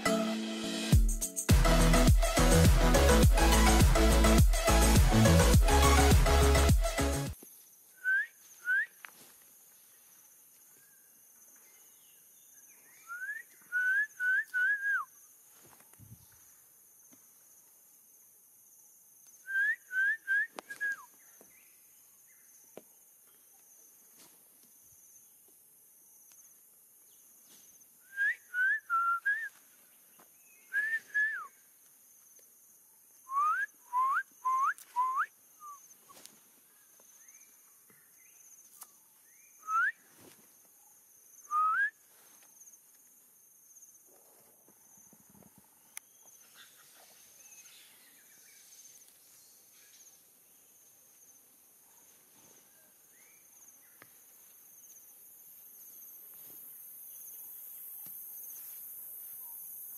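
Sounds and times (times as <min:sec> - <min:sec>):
short rising whistled notes: 0:33.3 - 0:35.8
high insect drone: 0:53.1 - 0:59.9.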